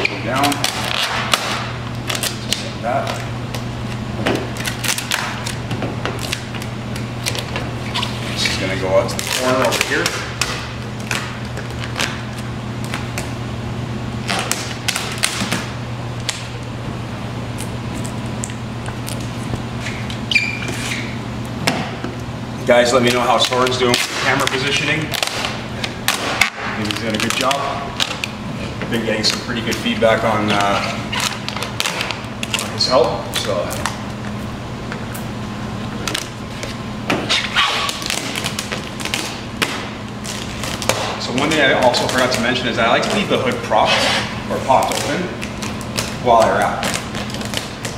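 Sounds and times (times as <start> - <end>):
steady low hum: 0.0 - 47.9
vinyl film crackling: 0.4 - 13.3, 36.0 - 47.9
short squeak: 19.8 - 21.2
vinyl film rustling and crinkling: 37.5 - 43.8, 44.6 - 47.9.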